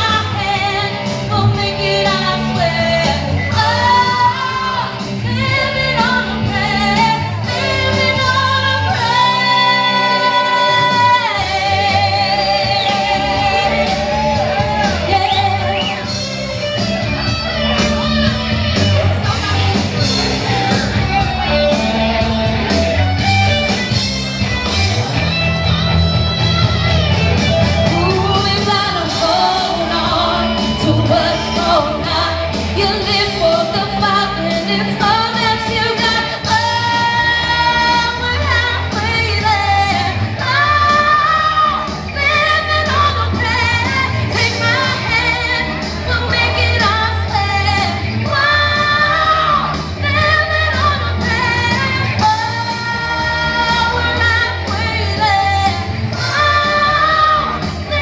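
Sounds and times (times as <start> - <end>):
woman singing into a microphone: 0.0 - 16.2, 27.9 - 58.0
loud backing music with bass: 0.0 - 58.0.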